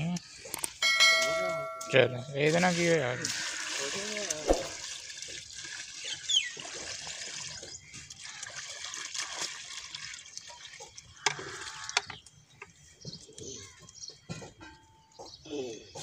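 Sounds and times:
water splashing into hole: 0:02.4 - 0:10.6.

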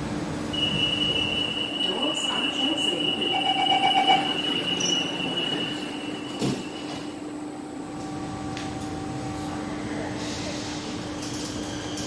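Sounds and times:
train hum: 0:00.0 - 0:12.0
high steady tone: 0:00.5 - 0:06.8
sliding train doors closing: 0:03.8 - 0:07.3.

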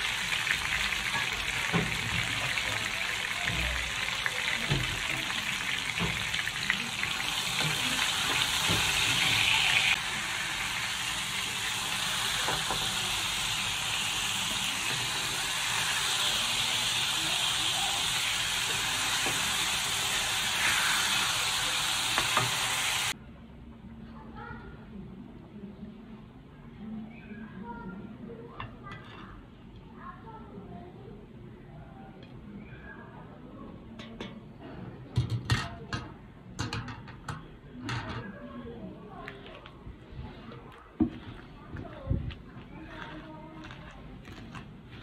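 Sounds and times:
hot oil sizzling in a wok: 0:00.0 - 0:23.2.

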